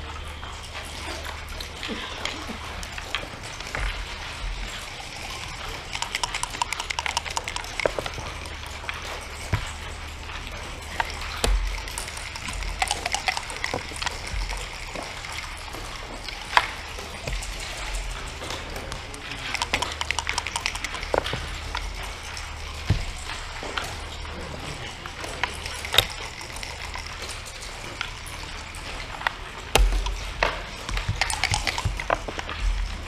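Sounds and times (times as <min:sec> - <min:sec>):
low room hum: 0:00.0 - 0:33.0
checkers and dice clattering on wood: 0:04.6 - 0:15.3, 0:19.3 - 0:22.2, 0:25.1 - 0:27.4, 0:29.8 - 0:32.5.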